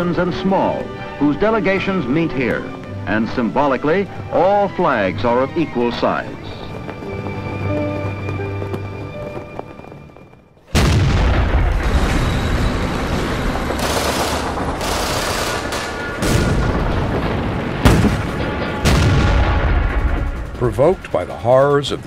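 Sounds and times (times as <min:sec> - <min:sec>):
music: 0:00.0 - 0:10.5, 0:17.7 - 0:22.0
explosion blasts: 0:10.7 - 0:13.9, 0:16.1 - 0:21.1
low battle rumble: 0:10.7 - 0:22.0
gunfire: 0:13.7 - 0:20.5.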